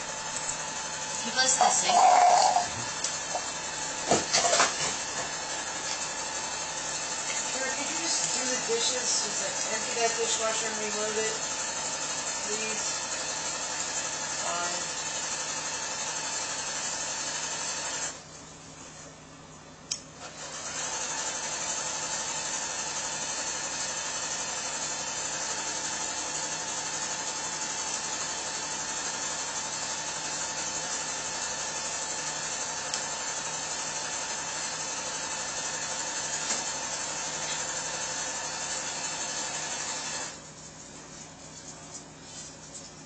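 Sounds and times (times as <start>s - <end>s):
tap water running: 0.0s - 7.5s.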